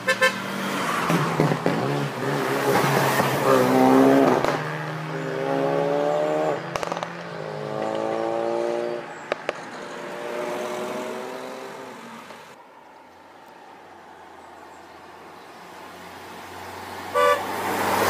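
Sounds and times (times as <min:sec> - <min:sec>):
car engine revving past: 0:00.5 - 0:09.0, 0:09.9 - 0:12.4
sharp cracks: 0:06.7 - 0:07.3.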